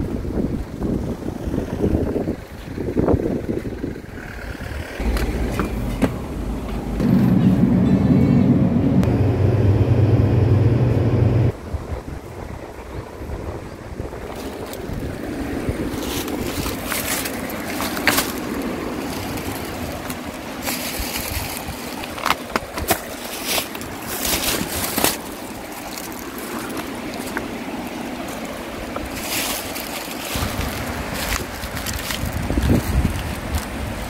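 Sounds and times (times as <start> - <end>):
wind buffeting microphone: 0.0 - 34.0
stream rushing: 4.6 - 34.0
footsteps through plants: 15.9 - 34.0.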